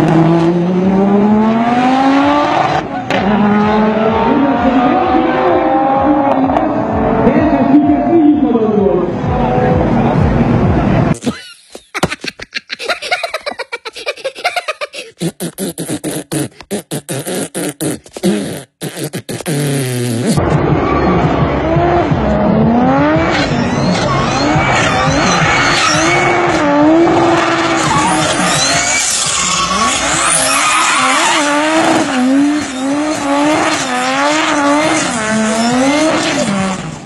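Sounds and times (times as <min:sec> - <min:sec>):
car engine revving: 0:00.0 - 0:11.2, 0:19.5 - 0:37.0
cartoon voice beatboxing: 0:15.0 - 0:20.4
tyre squeal: 0:23.2 - 0:33.3.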